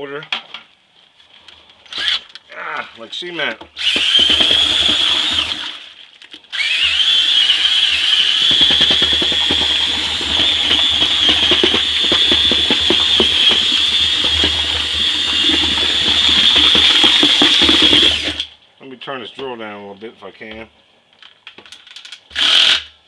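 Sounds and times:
cordless drill motor whine: 0:01.9 - 0:02.2, 0:03.8 - 0:05.8, 0:06.5 - 0:18.5, 0:22.3 - 0:22.9
mash churning clatter: 0:03.8 - 0:05.7, 0:07.3 - 0:18.5.

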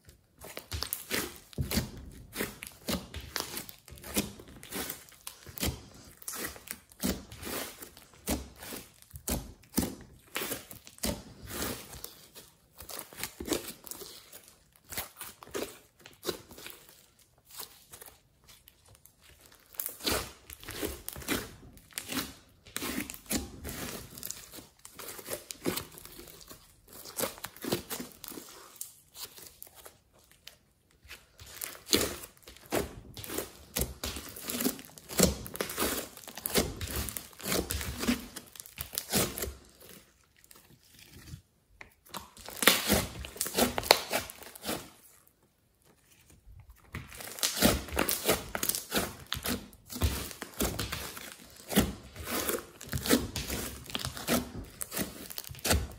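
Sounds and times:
sticky slime crackling and popping: 0:31.0 - 0:45.1, 0:46.6 - 0:55.9.

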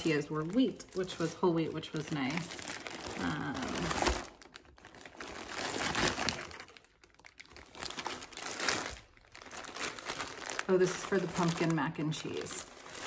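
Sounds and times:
plastic bags crinkling: 0:00.0 - 0:13.0.

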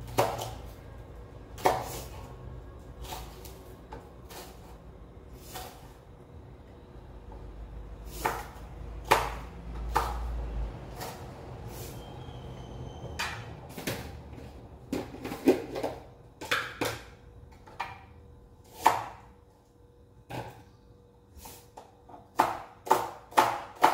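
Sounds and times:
knife chopping on cutting board: 0:00.0 - 0:00.7, 0:01.6 - 0:02.3, 0:03.0 - 0:04.7, 0:08.1 - 0:10.3, 0:18.6 - 0:19.3, 0:21.8 - 0:23.9.

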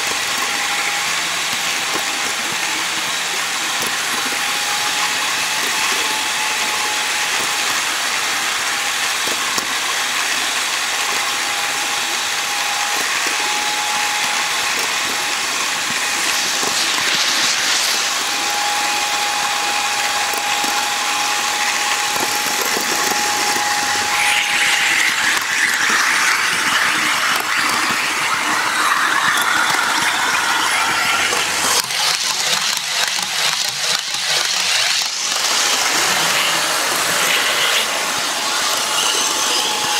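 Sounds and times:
model train whirring and rattling: 0:00.0 - 0:39.9
rapid clicking: 0:10.7 - 0:38.0.

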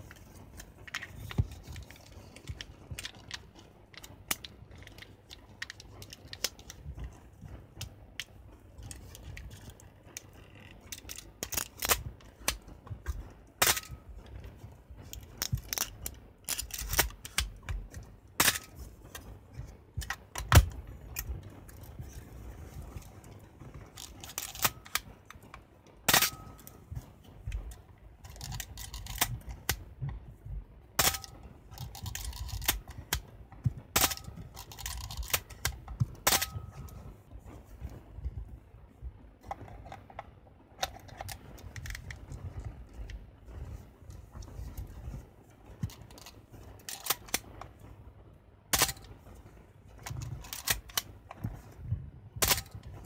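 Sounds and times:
rustle of hands and film: 0:00.0 - 0:53.0
camera mechanism clicks and clacks: 0:23.9 - 0:25.1, 0:28.2 - 0:29.8, 0:31.0 - 0:33.2, 0:33.9 - 0:36.6, 0:39.4 - 0:42.5, 0:45.8 - 0:47.7, 0:50.0 - 0:51.5.

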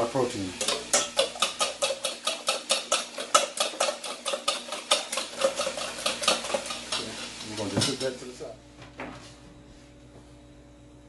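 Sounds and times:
whisk clicking against metal bowl: 0:00.6 - 0:08.1.

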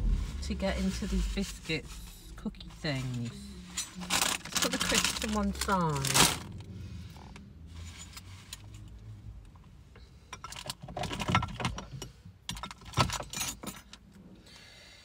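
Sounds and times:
packets crinkling: 0:04.0 - 0:06.5
snack packets rustling: 0:04.0 - 0:06.5.

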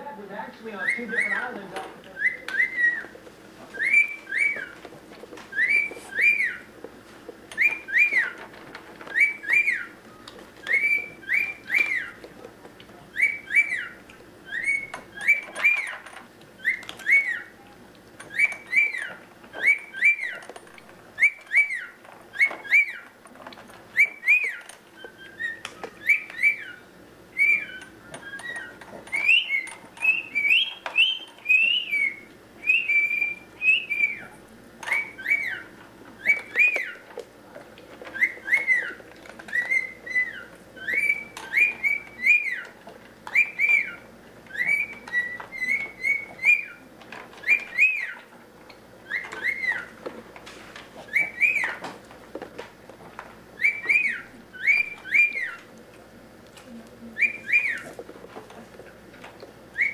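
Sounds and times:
cockatiel whistling: 0:00.7 - 0:04.8, 0:05.5 - 0:06.7, 0:07.6 - 0:08.4, 0:09.0 - 0:12.2, 0:13.1 - 0:16.0, 0:16.6 - 0:20.4, 0:21.2 - 0:23.0, 0:23.9 - 0:37.0, 0:38.1 - 0:48.3, 0:49.0 - 0:50.0, 0:51.1 - 0:51.8, 0:53.6 - 0:55.7, 0:57.2 - 0:57.9.

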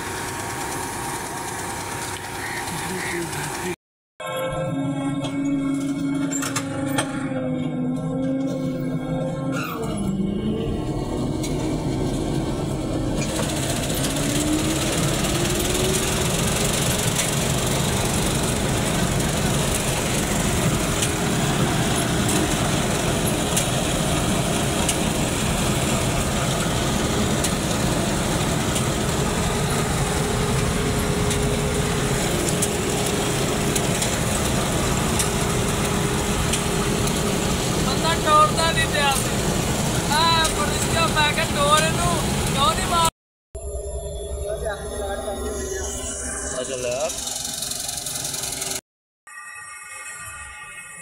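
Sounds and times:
combine harvester engine din: 0:00.0 - 0:03.8, 0:08.0 - 0:43.1.

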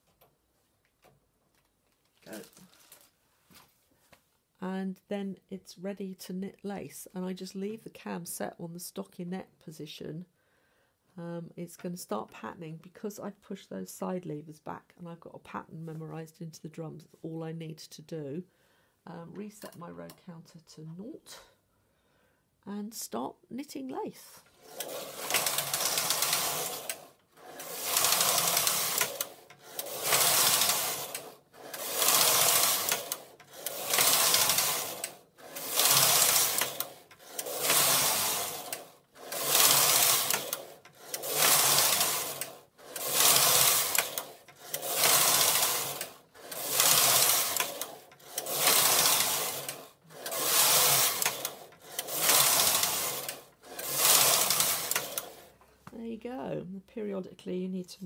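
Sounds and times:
knitting machine carriage running: 0:24.4 - 0:55.6.

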